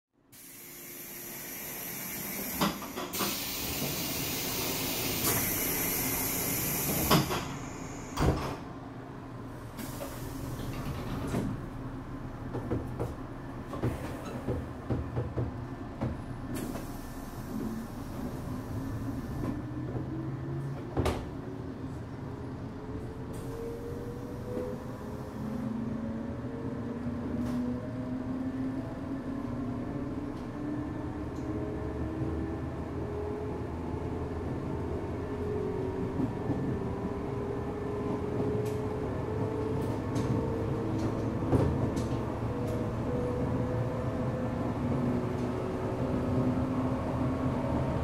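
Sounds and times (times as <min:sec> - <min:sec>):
train hiss: 0:00.3 - 0:08.4, 0:09.7 - 0:10.8
train rumbling: 0:00.8 - 0:48.0.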